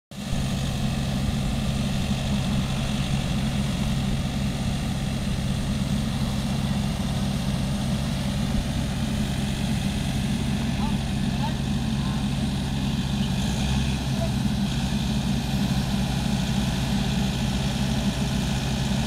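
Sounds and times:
farm machine engines droning: 0:00.1 - 0:19.0.

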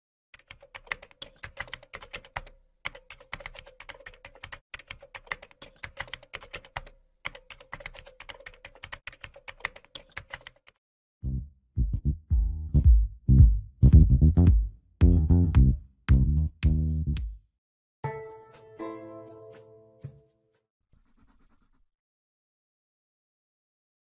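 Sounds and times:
bass-heavy music sting: 0:11.2 - 0:17.2.

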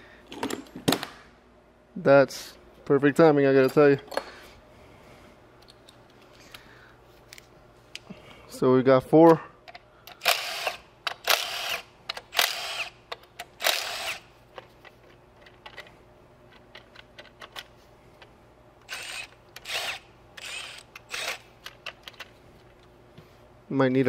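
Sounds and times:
cordless ratchet running: 0:10.2 - 0:13.0, 0:13.6 - 0:14.2, 0:18.8 - 0:21.4.

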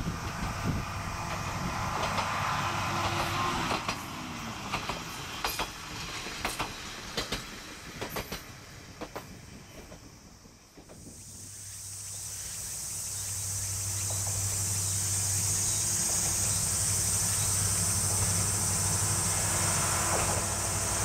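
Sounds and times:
diesel railcar engine drone: 0:00.0 - 0:21.0
insects trilling: 0:08.6 - 0:21.0.

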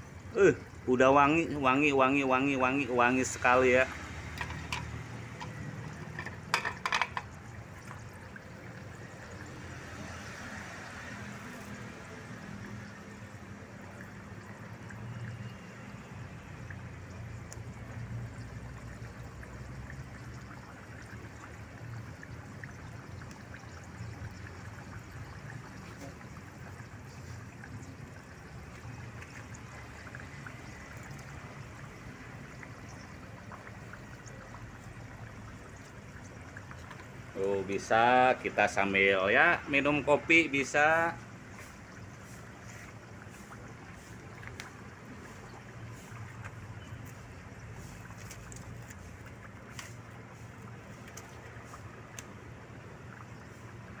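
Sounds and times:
broth boiling and sputtering: 0:00.0 - 0:54.0.

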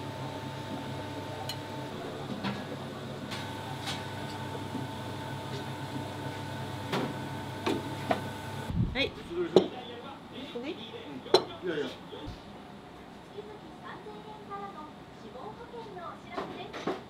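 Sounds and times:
equipment humming: 0:00.0 - 0:09.7.

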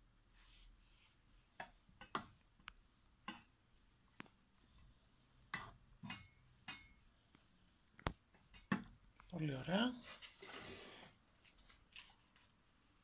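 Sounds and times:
wooden spoon knocking frying pan: 0:01.6 - 0:02.4, 0:05.5 - 0:07.0.

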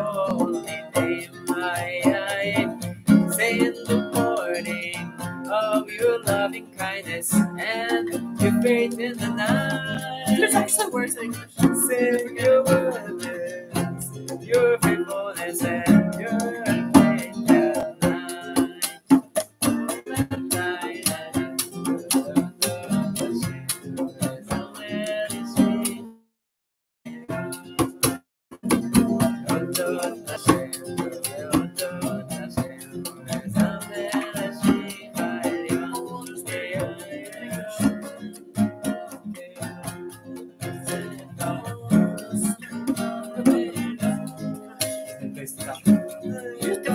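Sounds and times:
people singing: 0:00.0 - 0:19.0, 0:19.8 - 0:26.0, 0:28.9 - 0:46.9
acoustic guitar strumming: 0:00.0 - 0:26.2, 0:27.1 - 0:46.9
djembe hand drum: 0:07.7 - 0:24.7, 0:27.6 - 0:46.9.

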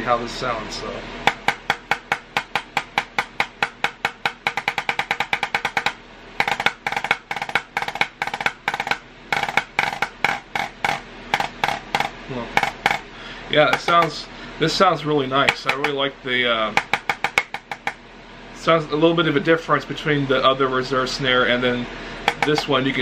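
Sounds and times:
drumsticks on practice pad: 0:01.2 - 0:14.2, 0:15.2 - 0:18.0, 0:22.2 - 0:23.0.

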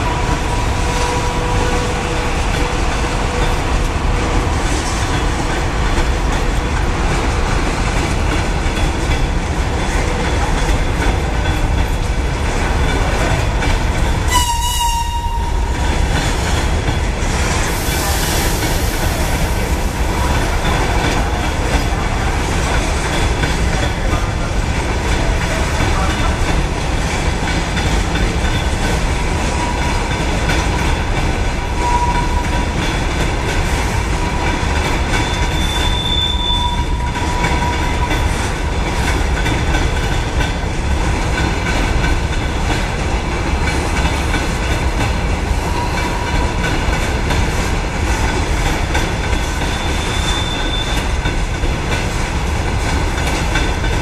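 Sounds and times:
freight train wheels rumbling on rail: 0:00.0 - 0:54.0
high wheel squeals: 0:35.2 - 0:38.1, 0:49.6 - 0:51.1.

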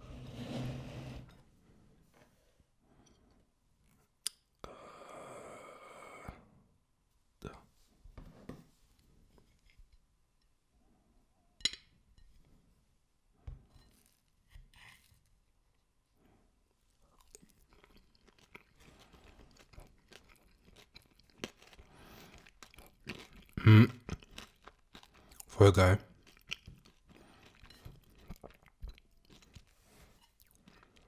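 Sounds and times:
chewing crunchy cheesecake: 0:17.0 - 0:31.0.

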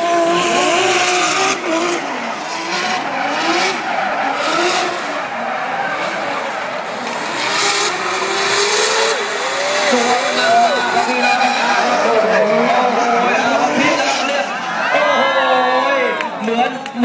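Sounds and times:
car engines revving: 0:00.0 - 0:17.0.

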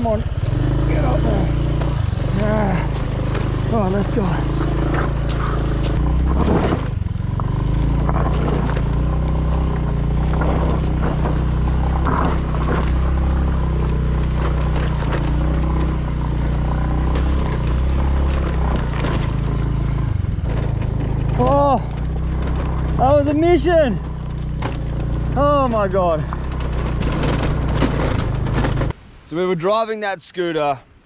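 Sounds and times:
motor scooter engine running: 0:00.0 - 0:29.0
knocks and rattles from bumps: 0:01.6 - 0:29.0.

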